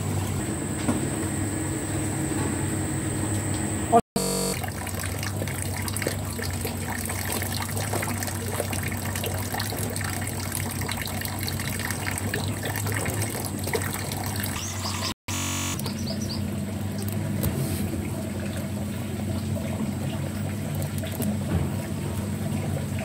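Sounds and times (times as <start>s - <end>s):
low steady hum: 0.0s - 13.4s.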